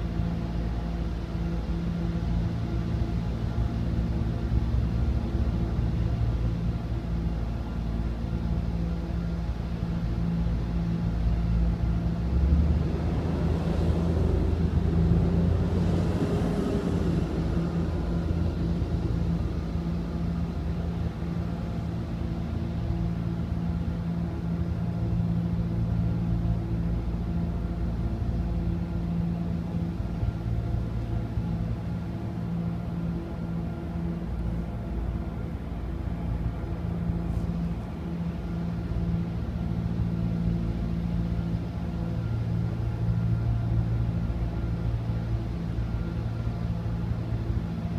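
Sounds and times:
engine idling: 9.6s - 47.8s
street traffic hum: 9.8s - 47.9s
truck driving past: 11.7s - 22.0s.

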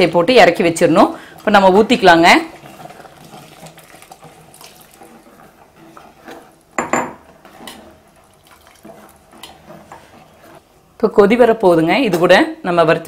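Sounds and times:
liquid pouring into a pot: 1.3s - 6.8s, 7.5s - 10.6s
metal clinking against pot: 6.8s - 7.8s.

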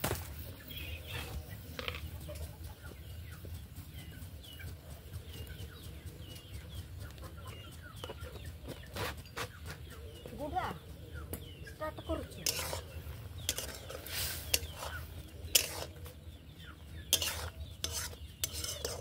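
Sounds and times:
chickens peeping: 0.2s - 19.0s
wood fire crackling: 12.4s - 16.2s.

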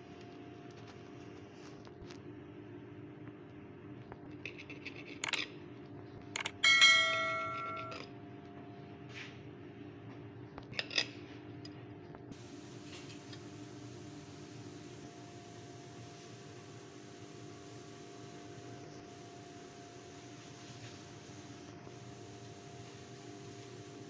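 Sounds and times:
metal knife clinking on plate: 6.4s - 8.0s
ringing knife strike on plate: 6.4s - 8.0s.

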